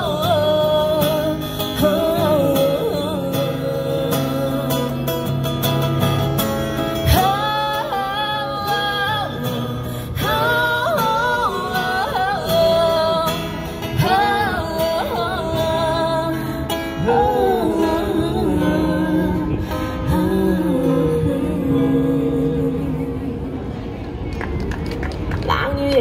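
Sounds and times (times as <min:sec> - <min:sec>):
woman singing: 0:00.0 - 0:05.0, 0:07.0 - 0:23.4
guitar accompaniment: 0:00.0 - 0:25.5.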